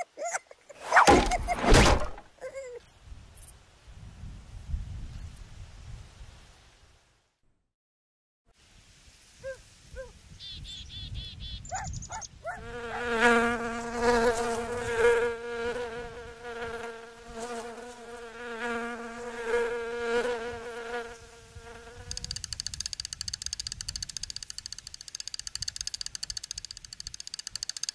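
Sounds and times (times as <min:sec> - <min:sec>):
insect buzzing: 0:12.5 - 0:27.9.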